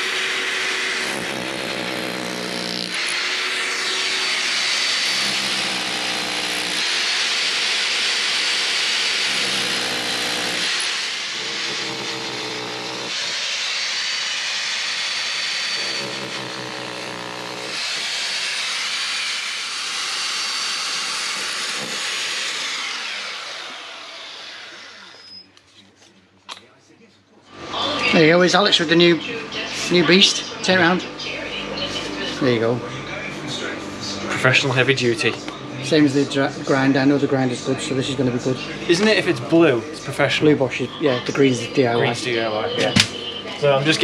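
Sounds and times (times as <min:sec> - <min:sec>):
hammer drill drilling into concrete: 0:00.0 - 0:25.6.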